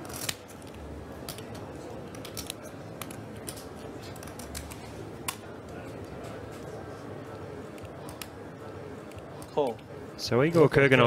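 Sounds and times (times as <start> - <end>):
poker chips clicking: 0.0 - 4.8
low room hum: 0.0 - 11.0.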